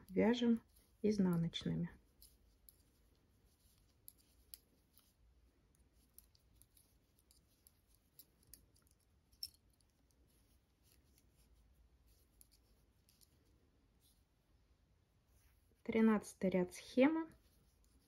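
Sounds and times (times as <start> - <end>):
knitting needles clicking: 0.0 - 13.5, 17.3 - 18.0.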